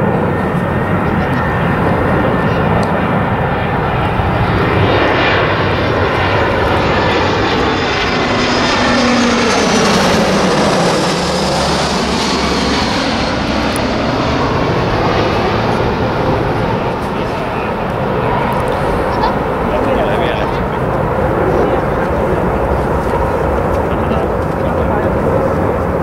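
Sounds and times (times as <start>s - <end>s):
jet airliner passing overhead: 0.0s - 26.0s.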